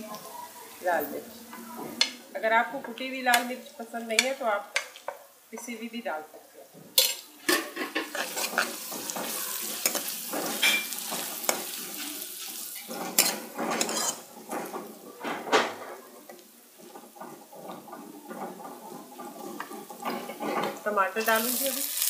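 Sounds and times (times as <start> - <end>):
onions sizzling in oil: 0.0 - 22.0
metal ladle scraping a pan: 7.0 - 22.0.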